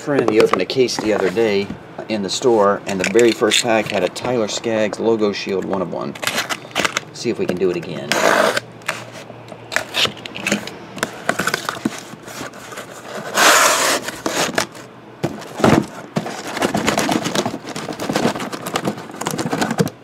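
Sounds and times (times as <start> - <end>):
boxes sliding and knocking: 0.1 - 1.8, 6.2 - 20.0
box cutter slitting tape: 8.1 - 9.1, 13.2 - 14.8
cardboard flaps scraping: 11.3 - 20.0.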